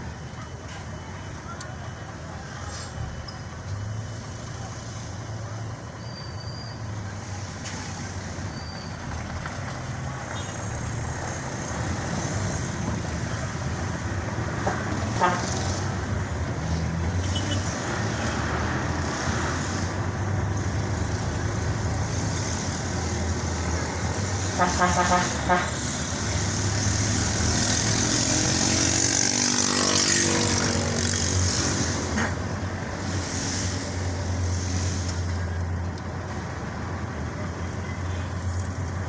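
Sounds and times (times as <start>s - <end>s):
vehicle engine and road noise: 0.0s - 39.0s
brief high squeaks: 6.0s - 7.0s, 8.4s - 9.0s.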